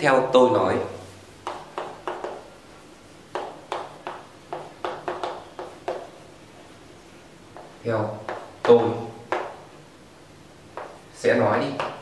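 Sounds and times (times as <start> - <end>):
chalk writing on a blackboard: 1.4 - 2.5, 3.3 - 6.2, 7.6 - 8.7, 10.8 - 11.1.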